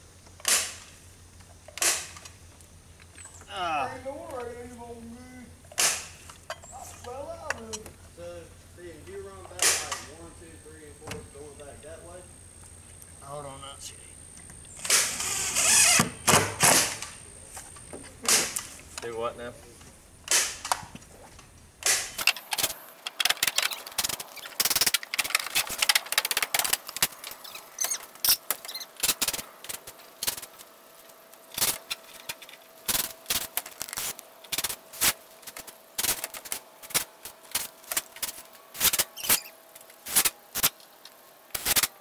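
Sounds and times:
nail gun snapping into wood: 0.4 - 0.9, 1.7 - 2.3, 5.7 - 6.2, 9.6 - 10.1, 14.8 - 15.2, 15.8 - 17.2, 20.3 - 20.9, 21.8 - 27.1.

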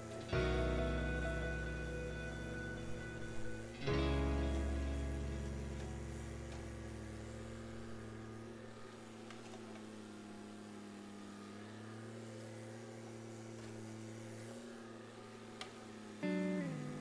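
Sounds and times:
distant diesel engine running: 0.0 - 9.3.

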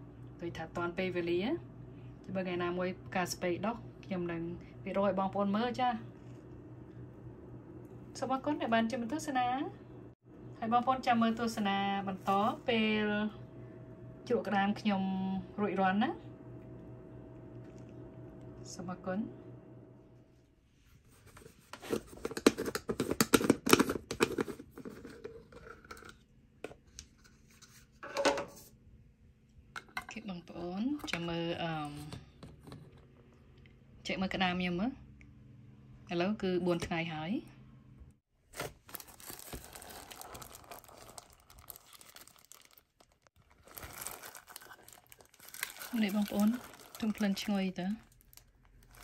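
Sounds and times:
plastic glove crinkling and rustling: 12.0 - 12.6, 38.4 - 49.0
plastic jar lid twisting: 21.8 - 26.1.

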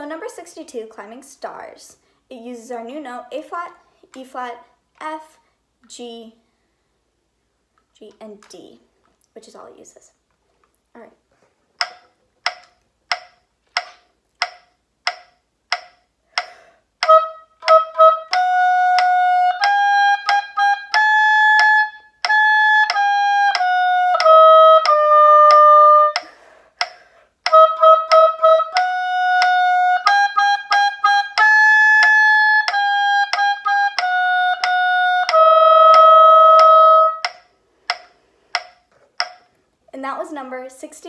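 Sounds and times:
metronome clicking: 11.8 - 39.6
oboe playing held notes: 17.0 - 26.4, 27.4 - 37.5.

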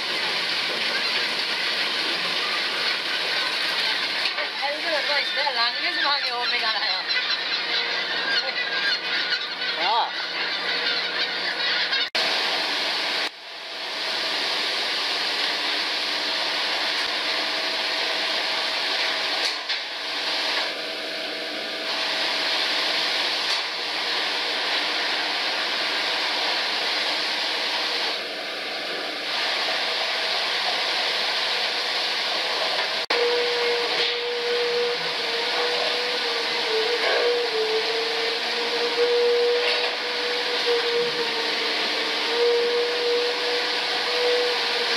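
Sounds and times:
water rushing from hoses: 0.0 - 6.0, 12.2 - 44.9
gulls calling: 0.0 - 12.2, 33.1 - 44.9
machinery humming: 0.0 - 44.9.

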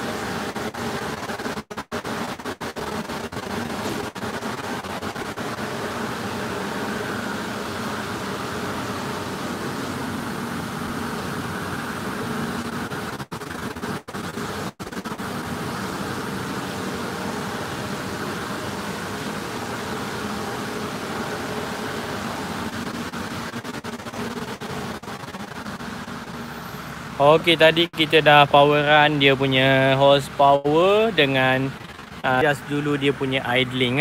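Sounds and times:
turbo car engine idling hiss: 14.3 - 34.0.

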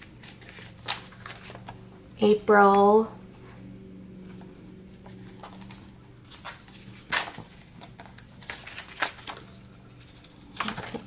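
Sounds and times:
paper pages rustling: 0.0 - 1.8, 4.3 - 11.0
steady low hum: 0.0 - 11.0.

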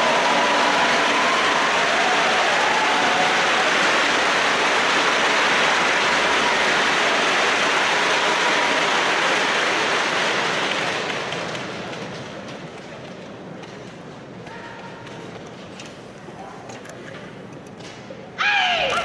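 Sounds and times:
crowd applauding: 0.0 - 12.2.

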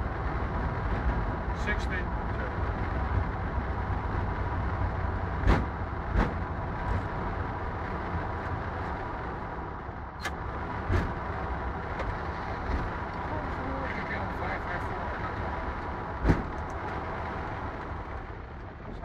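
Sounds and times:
low rumble in cockpit: 0.0 - 19.0
sharp knocks: 5.4 - 6.4.

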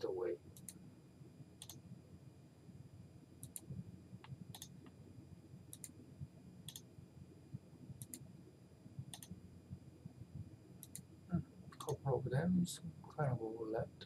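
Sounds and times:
low room hum: 0.0 - 14.0
computer mouse clicking: 1.6 - 1.8, 3.4 - 4.8, 5.7 - 6.0, 8.0 - 8.2, 9.1 - 9.4, 10.8 - 11.1.

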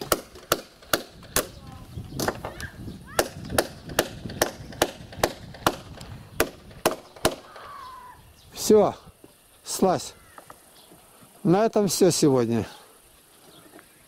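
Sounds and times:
hammer driving nails into wood: 0.0 - 1.5, 3.2 - 7.4.

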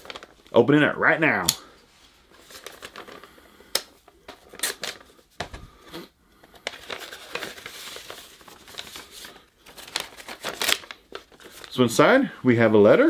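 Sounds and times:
paper rustling and tearing: 0.0 - 0.4, 2.3 - 3.3, 4.3 - 5.2, 6.6 - 11.9.

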